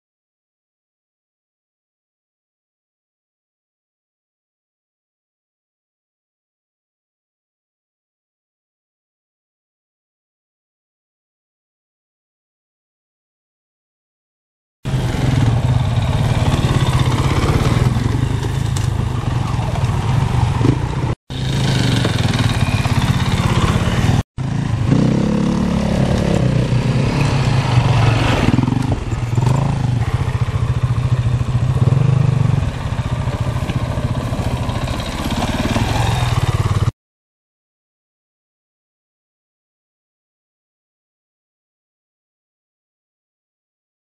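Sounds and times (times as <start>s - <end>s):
motorcycle engine revving: 14.9s - 36.9s.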